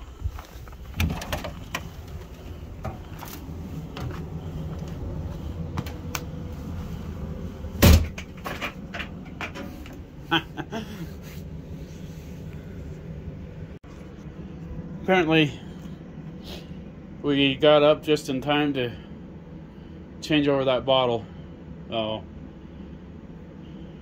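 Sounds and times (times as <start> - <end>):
door shutting with bang: 7.8 - 8.7.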